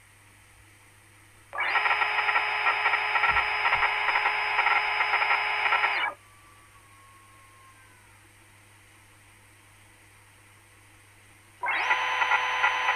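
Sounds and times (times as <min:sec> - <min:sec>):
simulated milling grinding noise: 0:01.6 - 0:06.2, 0:11.6 - 0:12.9.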